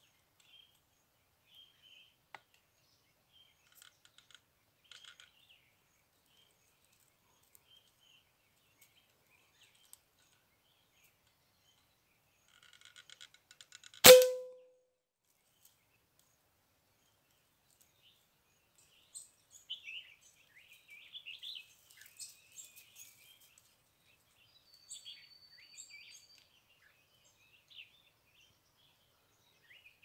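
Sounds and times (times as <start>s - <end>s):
small birds chirping: 0.0s - 13.8s, 15.2s - 30.0s
air rifle shot: 14.0s - 14.6s
short metallic ring: 14.0s - 14.7s.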